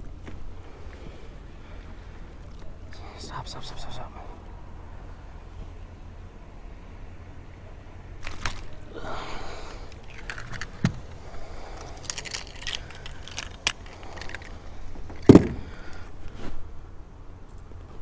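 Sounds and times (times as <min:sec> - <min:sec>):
fishing tackle rattling against boat: 0:09.8 - 0:11.1
heavy thump: 0:15.2 - 0:15.9.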